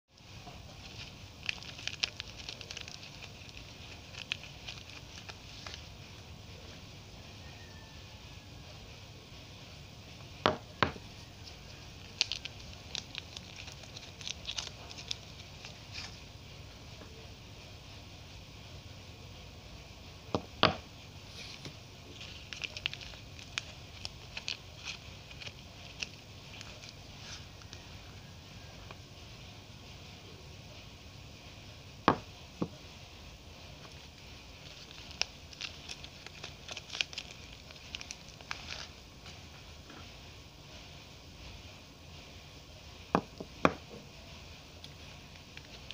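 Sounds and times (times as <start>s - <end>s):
plastic wrapper crinkling: 0.2s - 6.3s, 10.9s - 16.3s, 21.3s - 28.3s, 33.6s - 40.2s, 44.8s - 45.9s.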